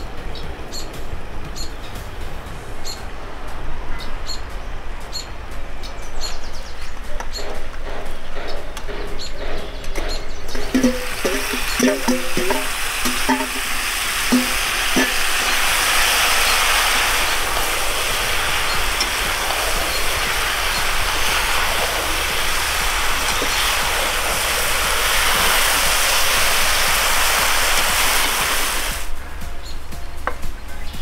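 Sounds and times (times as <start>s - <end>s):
metal spoon clinking on pot: 10.6s - 13.7s
meat and potatoes sizzling: 10.6s - 29.1s.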